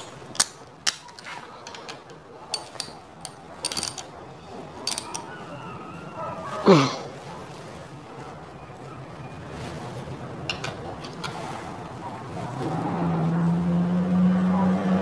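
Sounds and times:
metallic clicks and clinks: 0:00.0 - 0:05.3.

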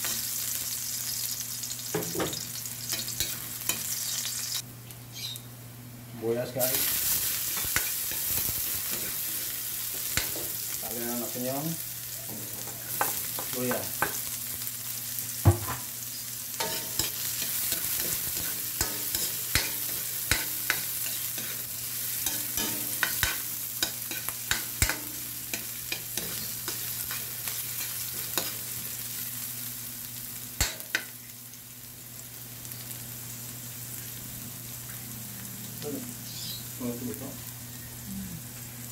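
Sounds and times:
food sizzling in hot oil: 0:00.0 - 0:05.4, 0:06.4 - 0:38.9
spatula scraping and knocking wok: 0:06.8 - 0:10.7, 0:16.6 - 0:28.7.

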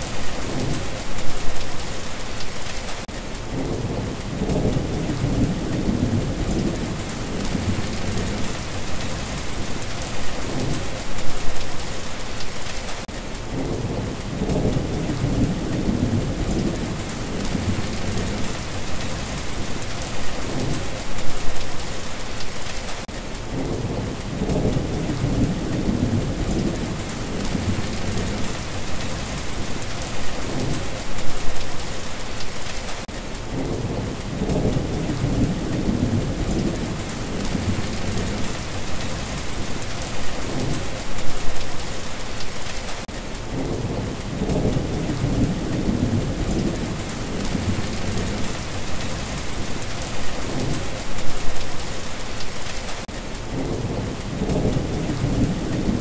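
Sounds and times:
heavy rain hissing: 0:00.0 - 0:56.0
low rolling thunder: 0:03.5 - 0:11.1, 0:13.5 - 0:21.1, 0:23.5 - 0:31.1, 0:33.5 - 0:41.0, 0:43.5 - 0:51.6, 0:53.5 - 0:56.0.

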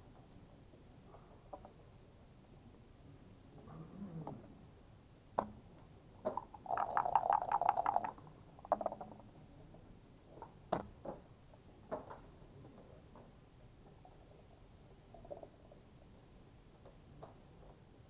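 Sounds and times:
dice clattering on a board: 0:06.3 - 0:09.2
dice rattling in a cup: 0:06.4 - 0:09.2.

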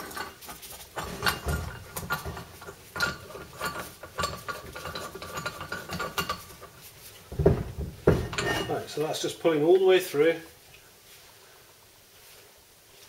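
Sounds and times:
metal parts clicking and knocking: 0:00.0 - 0:08.8
light metallic ringing: 0:08.0 - 0:09.0.

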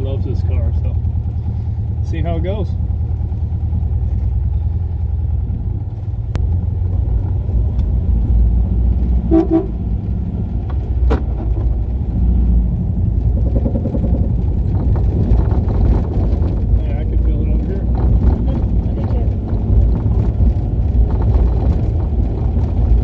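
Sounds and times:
car engine and road noise: 0:00.0 - 0:23.0
car horn toots: 0:09.2 - 0:09.8.

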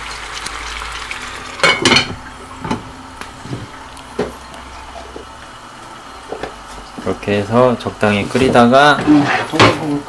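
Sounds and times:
food sizzling in pot: 0:00.0 - 0:10.0
pot lid clanking: 0:01.6 - 0:02.9.

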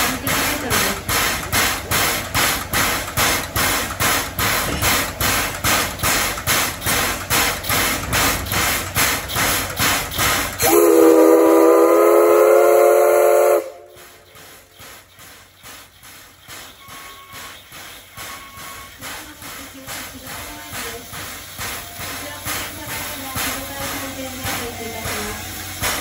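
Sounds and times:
steam hissing in pulses: 0:00.0 - 0:26.0
steam whistle blast: 0:10.6 - 0:14.3.

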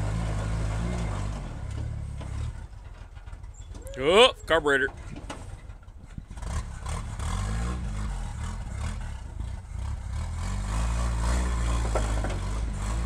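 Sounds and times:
pickup truck engine revving: 0:06.3 - 0:13.0.

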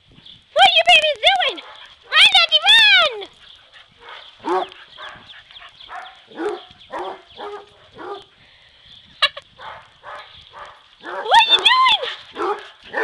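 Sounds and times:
dog barking: 0:01.6 - 0:01.9, 0:04.0 - 0:05.2, 0:05.9 - 0:08.3, 0:09.6 - 0:11.3, 0:12.3 - 0:13.0.

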